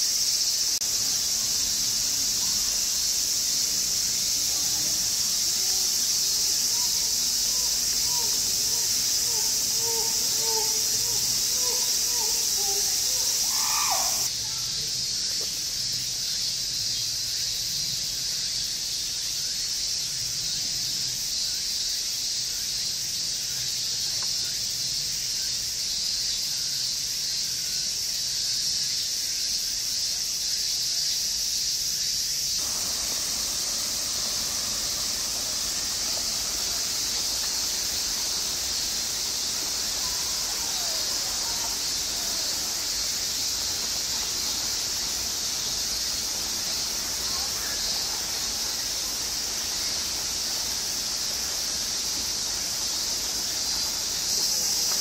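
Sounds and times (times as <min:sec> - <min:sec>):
cicadas droning: 0:00.0 - 0:55.0.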